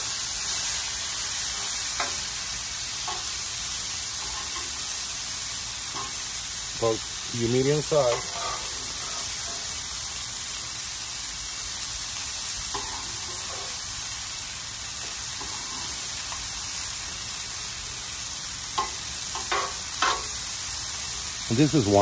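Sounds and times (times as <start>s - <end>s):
food sizzling on a griddle: 0.0s - 22.0s
metal tongs clinking and scraping: 3.0s - 3.4s, 4.2s - 4.9s, 5.9s - 6.2s, 7.6s - 9.8s, 12.7s - 13.8s, 18.8s - 20.3s.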